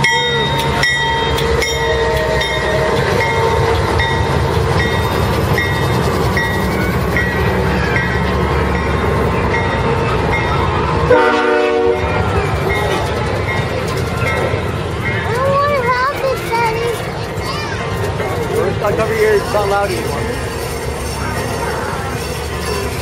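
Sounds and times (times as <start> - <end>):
bell ringing: 0.0 - 10.6
diesel locomotive engine rumble: 0.0 - 23.0
locomotive horn blast: 11.1 - 12.2.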